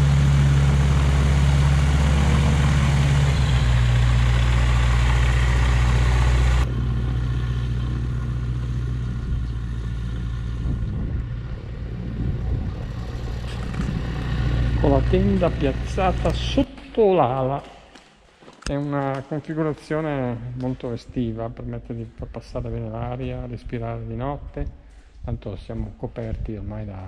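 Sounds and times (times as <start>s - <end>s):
small aircraft engine humming: 0.0s - 16.6s.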